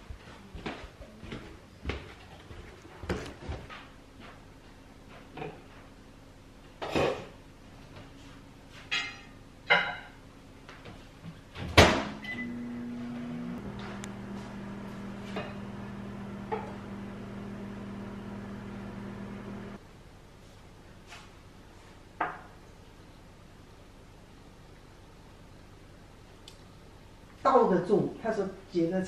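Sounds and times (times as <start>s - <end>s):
dishes clinking: 8.9s - 10.2s
microwave humming: 11.8s - 19.8s
short beep: 12.2s - 12.7s.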